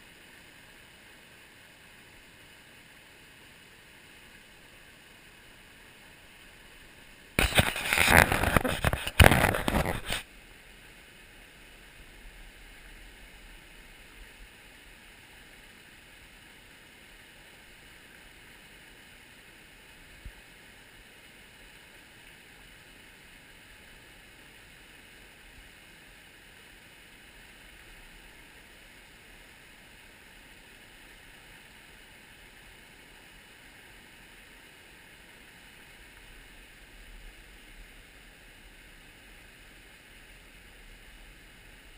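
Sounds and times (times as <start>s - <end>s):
brook running over rocks: 0.0s - 41.9s.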